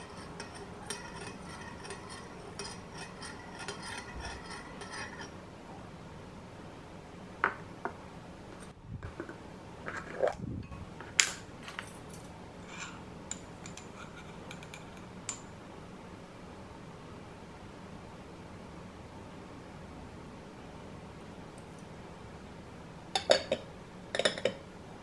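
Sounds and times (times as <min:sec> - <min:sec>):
metal spoon clinking on glass: 0:00.0 - 0:05.3, 0:23.2 - 0:24.6
glass jar handling: 0:23.2 - 0:24.6.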